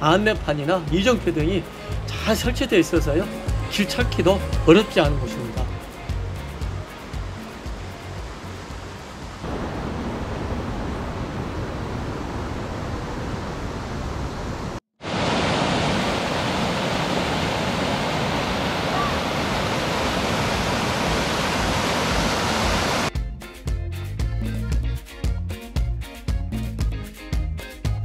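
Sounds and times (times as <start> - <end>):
music with a beat: 0.4 - 8.9, 23.1 - 28.0
stream rushing over rocks: 5.9 - 23.1.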